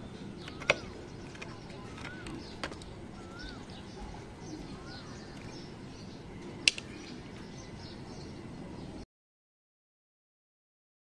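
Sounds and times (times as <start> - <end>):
birds chirping: 0.0 - 9.0
sharp click: 6.6 - 6.9.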